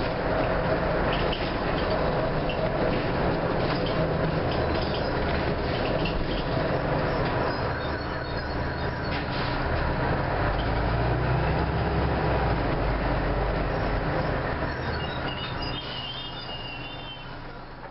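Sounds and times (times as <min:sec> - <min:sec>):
bus engine running inside bus: 0:00.0 - 0:17.9
faint high squeal: 0:14.6 - 0:17.7.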